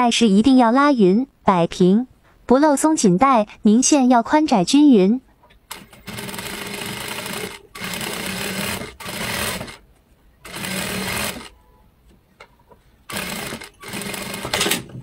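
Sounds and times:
sewing machine stitching: 5.7s - 9.8s, 10.4s - 11.6s, 13.1s - 15.0s.

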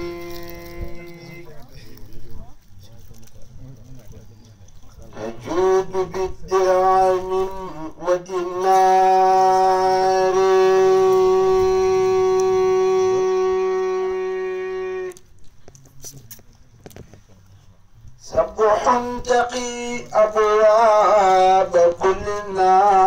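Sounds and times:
man chanting into a microphone: 0.0s - 1.8s, 5.1s - 14.9s, 18.2s - 23.0s.

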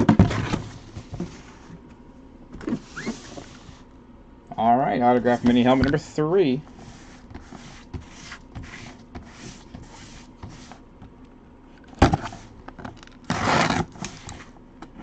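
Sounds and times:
hands rubbing cardboard box: 6.7s - 10.8s
loud scrape on cardboard: 6.8s - 10.8s, 13.3s - 14.6s.

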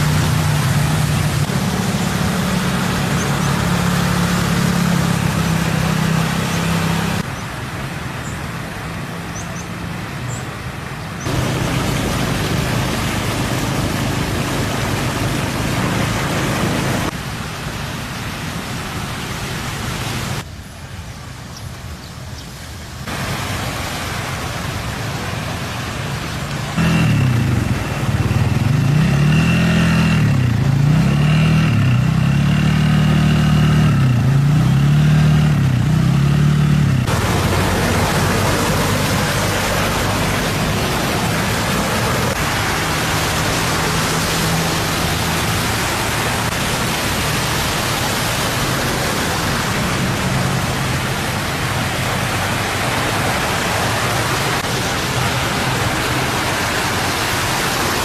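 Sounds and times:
vehicle engine revving: 0.0s - 7.3s, 11.2s - 17.2s, 26.8s - 58.0s
steady rushing noise: 0.0s - 20.6s, 22.9s - 58.0s
faint engine hum: 24.5s - 58.0s.

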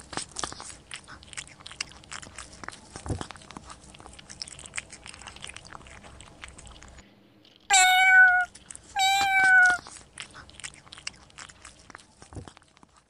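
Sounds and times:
cat crunching dry biscuits: 0.0s - 13.0s
cat meowing: 7.7s - 9.8s.

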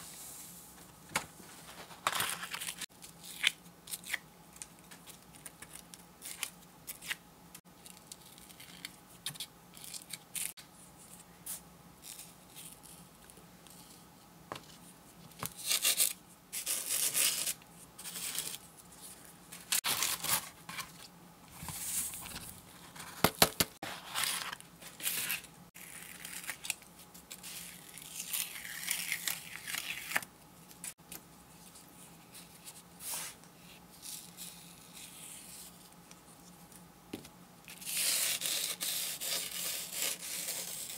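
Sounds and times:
paper rustling: 1.1s - 2.9s
crackly peeling of film: 25.2s - 30.9s.

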